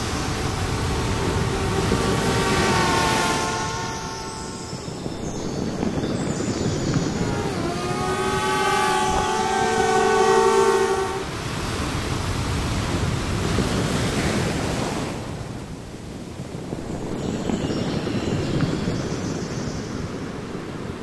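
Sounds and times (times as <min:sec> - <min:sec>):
chord horn blast: 0:00.0 - 0:05.2, 0:07.1 - 0:11.4
outdoor background rush: 0:00.0 - 0:21.0.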